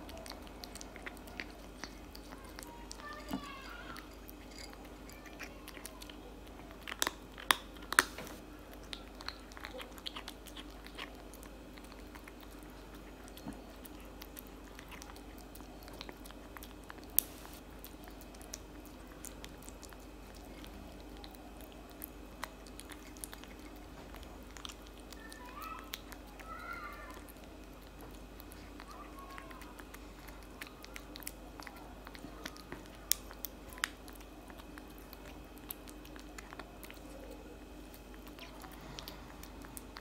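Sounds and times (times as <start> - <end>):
kitten chewing wet food: 0.0 - 40.0.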